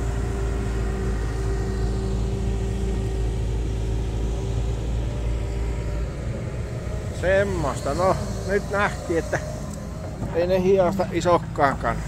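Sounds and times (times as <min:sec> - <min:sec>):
excavator diesel engine running: 0:00.0 - 0:12.0
steady tone: 0:05.8 - 0:12.0.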